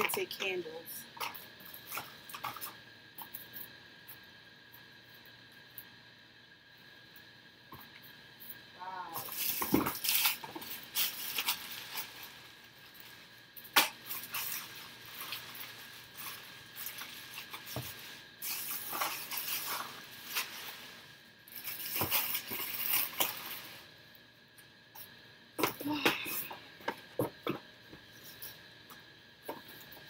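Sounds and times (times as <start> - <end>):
plastic packaging crinkling: 9.2 - 24.0.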